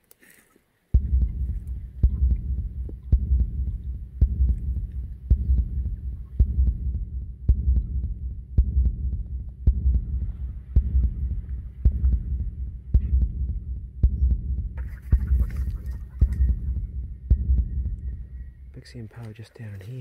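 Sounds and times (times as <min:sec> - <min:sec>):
low rumble: 0:00.9 - 0:19.0.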